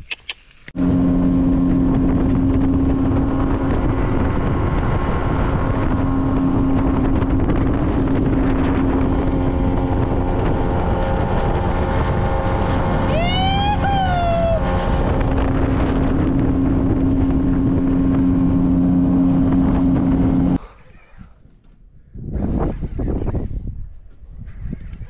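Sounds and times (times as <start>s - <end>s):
wind rushing over microphone: 0.7s - 25.0s
outboard motor running: 0.8s - 20.6s.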